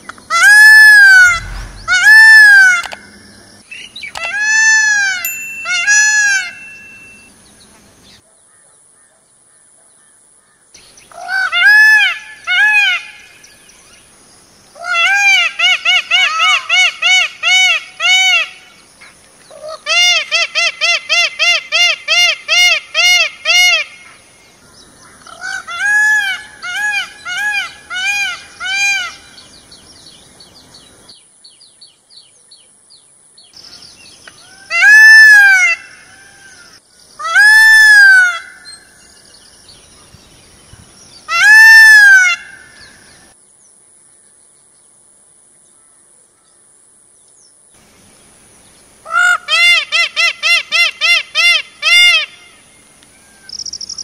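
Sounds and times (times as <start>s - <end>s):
peafowl calling: 0.3s - 3.2s, 11.1s - 13.4s, 14.8s - 18.7s, 19.5s - 29.5s, 33.6s - 38.9s, 41.3s - 43.3s, 49.0s - 54.0s.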